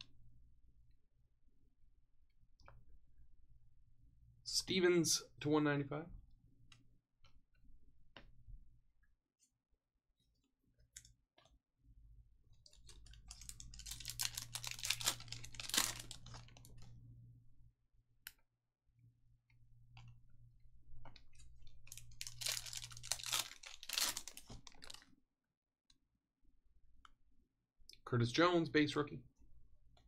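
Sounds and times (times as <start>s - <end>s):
cards and wrappers crinkling: 12.6s - 17.0s, 21.0s - 25.1s.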